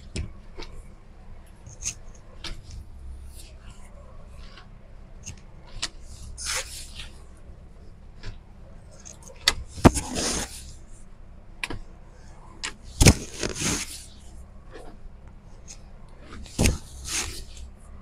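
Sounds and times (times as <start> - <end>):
fabric rustling: 13.0 - 14.2.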